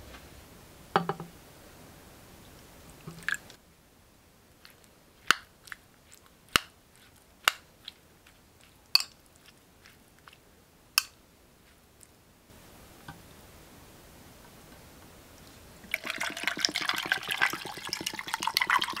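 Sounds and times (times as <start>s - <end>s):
spoon clinking against glass bowl: 9.0s - 9.2s.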